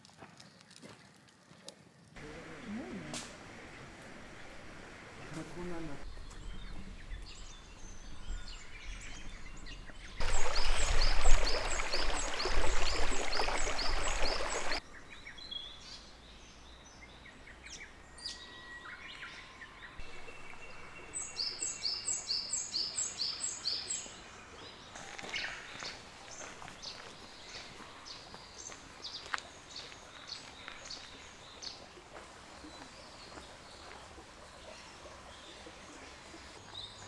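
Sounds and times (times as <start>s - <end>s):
birds calling: 2.2s - 15.8s.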